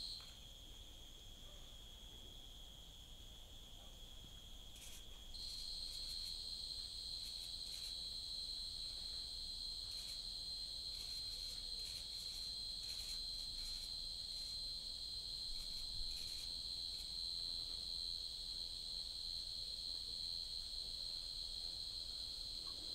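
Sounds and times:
shrill insect chorus: 0.0 - 1.2, 4.7 - 22.9
higher insect trill: 4.7 - 17.6.

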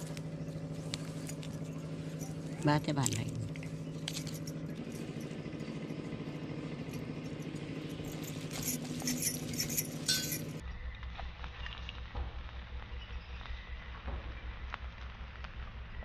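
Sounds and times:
light clicks and rattles: 0.0 - 10.6
low pulsing hum: 0.0 - 16.0
steady motor hum: 0.0 - 16.0.

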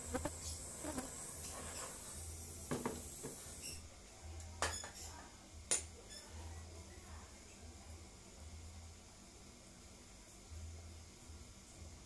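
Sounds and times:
gas torch hissing: 0.0 - 3.8.

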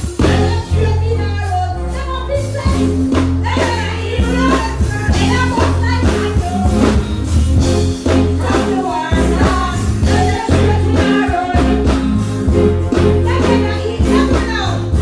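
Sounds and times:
bass-heavy backing track: 0.0 - 15.0
woman singing into microphone: 0.2 - 2.8, 3.4 - 7.0, 8.4 - 12.1, 13.2 - 15.0.

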